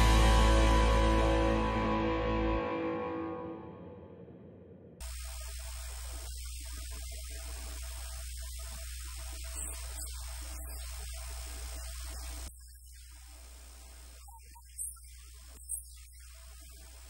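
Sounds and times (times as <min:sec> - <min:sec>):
electrical mains hum: 0:05.0 - 0:17.0
microphone hiss: 0:05.0 - 0:17.0.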